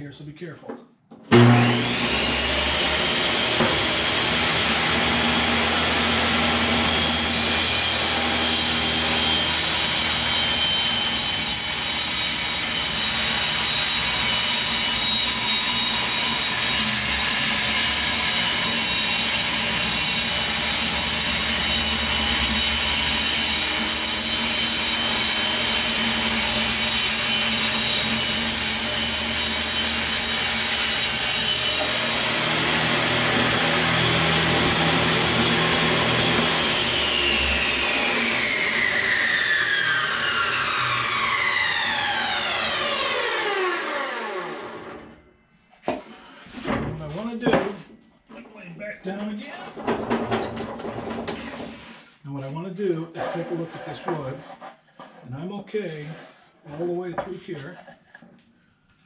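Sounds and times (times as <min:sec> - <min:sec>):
saw cutting wood panels: 0:01.2 - 0:45.2, 0:49.1 - 0:57.8
table saw running: 0:01.3 - 0:45.2.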